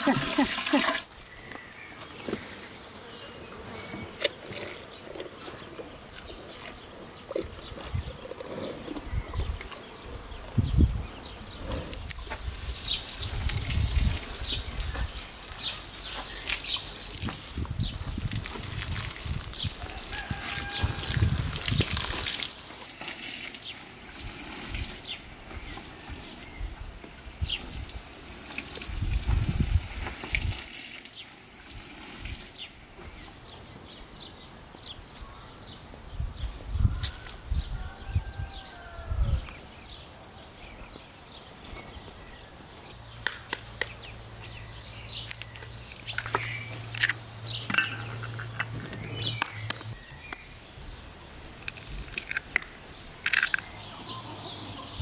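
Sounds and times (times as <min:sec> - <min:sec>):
water running and splashing: 0:00.0 - 0:01.3, 0:12.0 - 0:33.5.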